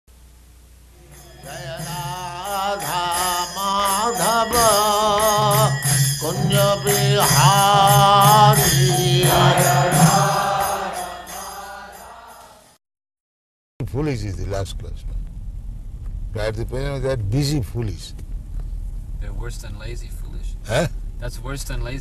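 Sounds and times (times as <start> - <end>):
steady low drone: 0.9 - 11.5
rhythmic sharp strikes: 1.0 - 12.6
devotional chant singing: 1.0 - 12.7.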